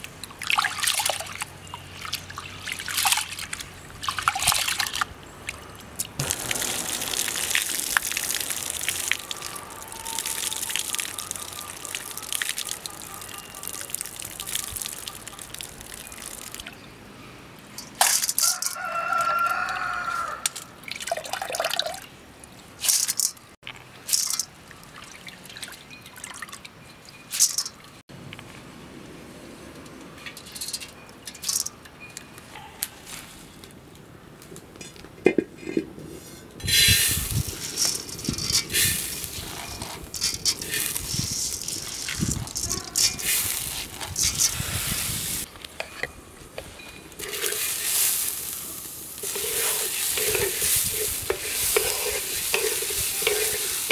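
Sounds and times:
water splashing and trickling: 0:00.0 - 0:28.0, 0:36.6 - 0:46.2, 0:46.8 - 0:53.9
rooster crowing: 0:09.2 - 0:12.2, 0:18.4 - 0:20.5
hands rubbing rice in water: 0:47.2 - 0:53.9.

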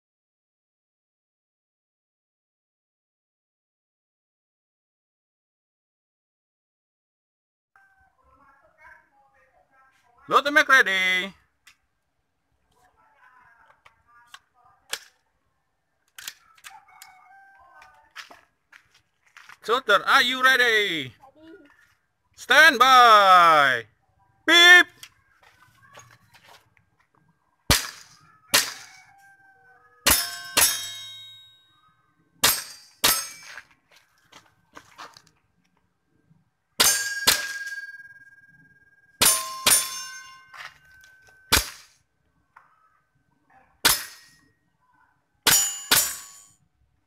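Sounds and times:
airsoft pistol shots: 0:27.7 - 0:28.8
steel targets clanging: 0:30.1 - 0:31.5, 0:32.4 - 0:33.6, 0:36.8 - 0:38.2, 0:39.2 - 0:42.0, 0:43.8 - 0:44.5, 0:45.5 - 0:46.5.

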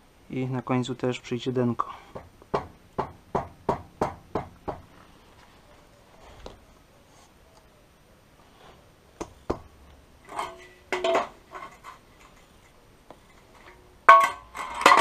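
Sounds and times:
metal grating clicks and clanks: 0:10.2 - 0:15.0.

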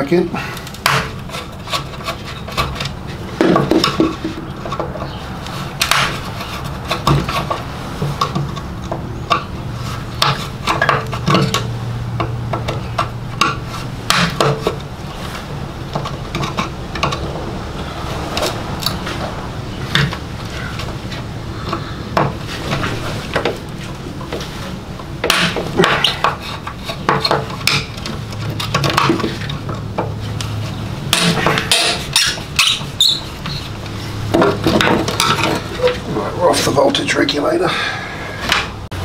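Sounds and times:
small metallic clicks and scrapes: 0:00.6 - 0:17.4, 0:22.5 - 0:36.1.

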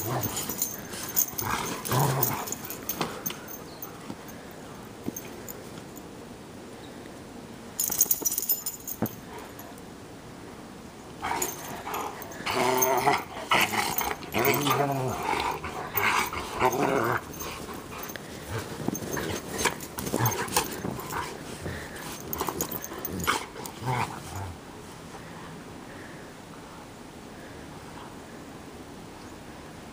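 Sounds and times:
dogs play-growling: 0:00.0 - 0:04.4, 0:11.2 - 0:25.3.

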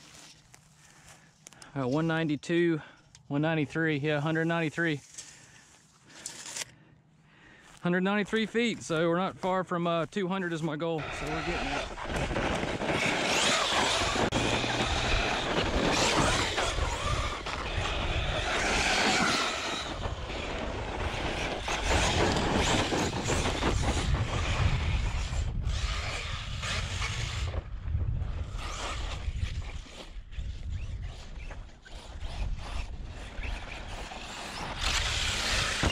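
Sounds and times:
rc car tires churning gravel: 0:07.7 - 0:35.9
wind noise on microphone: 0:11.0 - 0:35.9.

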